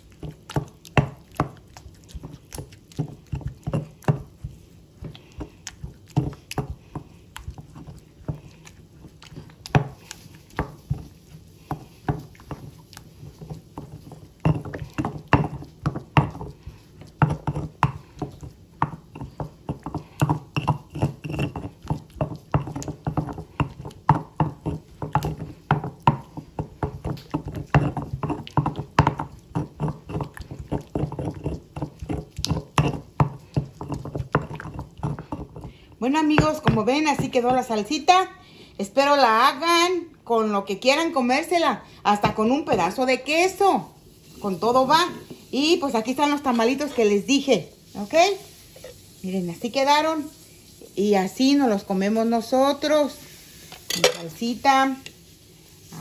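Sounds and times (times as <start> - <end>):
stone pestle pounding in mortar: 0.0 - 11.1, 11.7 - 37.8.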